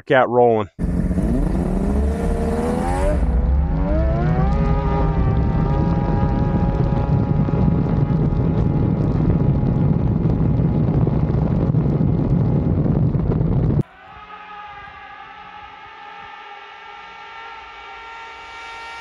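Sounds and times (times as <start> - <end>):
distant snowmobile engine: 0.8 - 10.8
snowmobile engine at high revs: 0.8 - 12.8
wind noise on microphone: 0.8 - 16.5.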